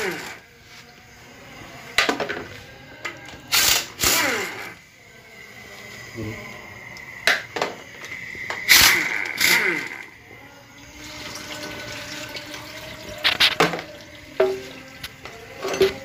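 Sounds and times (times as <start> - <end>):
fluid pouring and splashing: 10.9 - 15.2
metal pan and tools clanking: 15.6 - 16.0.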